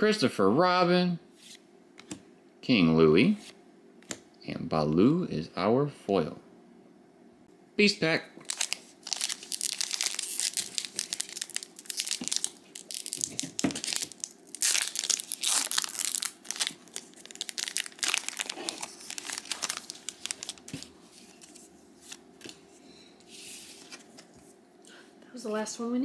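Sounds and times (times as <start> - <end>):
foil pack tearing and crinkling: 8.4 - 21.5.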